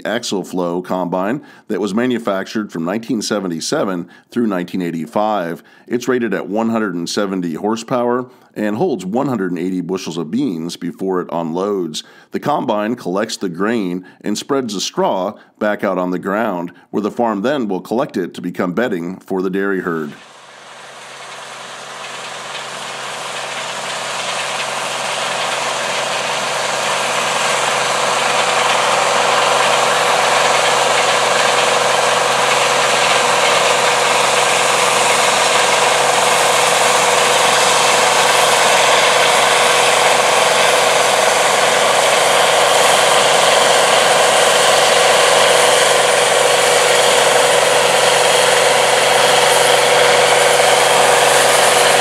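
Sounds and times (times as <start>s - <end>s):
combine harvester droning: 20.1s - 52.0s.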